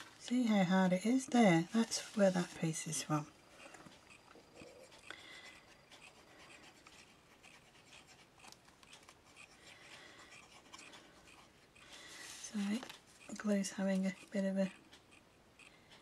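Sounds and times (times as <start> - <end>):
scratching of paper jigsaw piece: 5.5 - 11.5.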